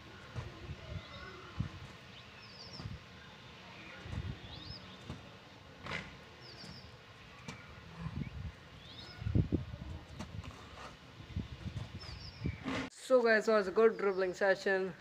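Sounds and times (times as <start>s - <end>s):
small birds chirping: 0.1s - 5.5s, 6.4s - 10.4s, 11.3s - 12.7s.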